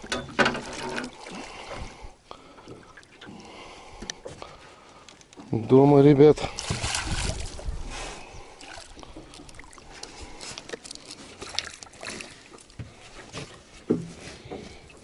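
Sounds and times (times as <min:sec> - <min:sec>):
knocks and clicks in a boat: 0:00.0 - 0:03.4, 0:12.8 - 0:15.0
water dripping and sloshing: 0:00.0 - 0:05.7, 0:06.3 - 0:15.0.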